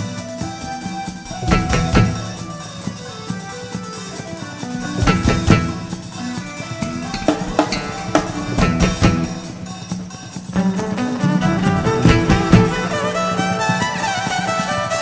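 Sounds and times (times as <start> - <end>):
keyboard held notes: 0.0 - 10.0, 10.6 - 15.0
drum kit strikes and fills: 1.2 - 2.9, 4.7 - 14.8
violin held notes: 1.2 - 3.2.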